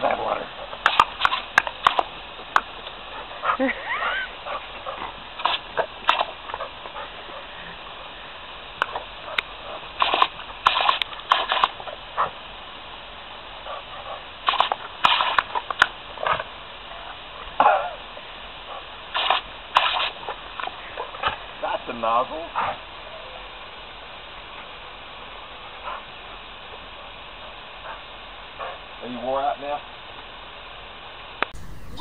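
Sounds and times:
garden hose spray hissing: 0.0 - 32.0
dog snapping at water splashes: 0.8 - 2.8, 5.4 - 6.7, 8.8 - 12.3, 14.4 - 16.5, 19.1 - 21.4.

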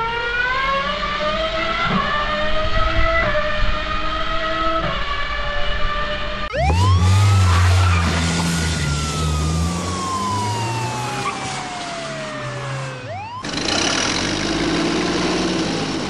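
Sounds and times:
police siren wailing: 0.0 - 13.8
car engine rumbling: 6.5 - 16.0
excavator engine and clatter: 11.4 - 16.0.

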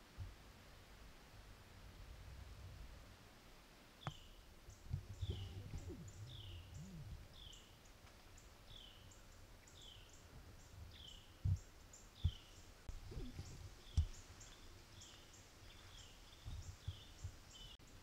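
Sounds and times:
soft low thumps: 4.8 - 7.5, 10.3 - 17.8.

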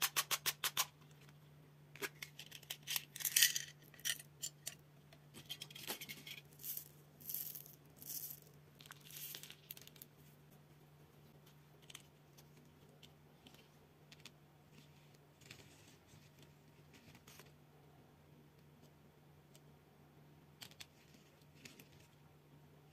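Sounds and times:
candy tablets rattling: 2.4 - 4.3, 6.0 - 10.1.

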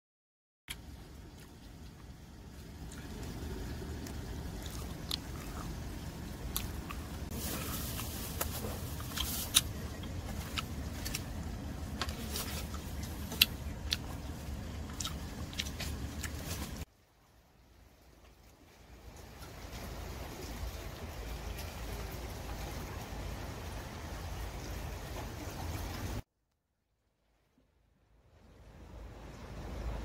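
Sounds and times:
biting and chewing: 0.7 - 16.8
steady low rumble: 0.7 - 16.9.

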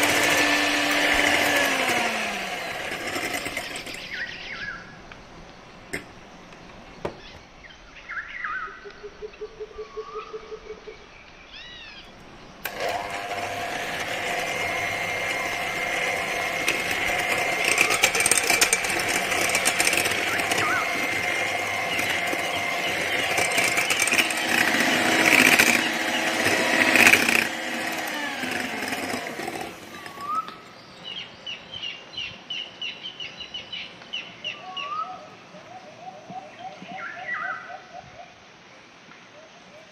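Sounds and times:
electric hand mixer running: 0.0 - 4.3, 12.6 - 30.5
birds chirping quietly: 2.9 - 12.7, 14.4 - 39.9.

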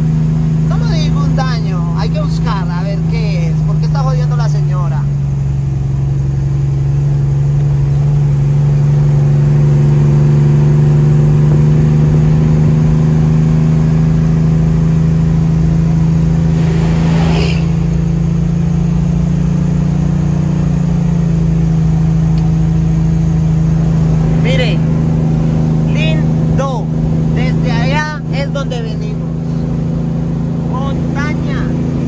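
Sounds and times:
truck diesel engine droning: 0.0 - 32.0
brief high-pitched noise: 16.4 - 18.3.

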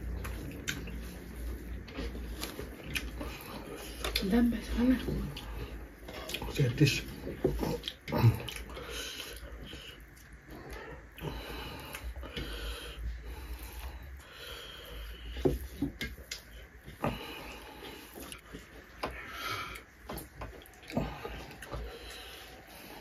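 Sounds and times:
chewing and mouth noises: 0.0 - 23.0.

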